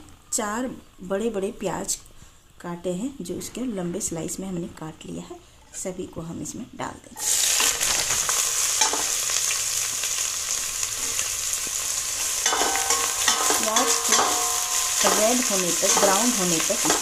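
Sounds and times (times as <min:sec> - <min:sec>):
onions sizzling in hot oil: 0:07.2 - 0:17.0.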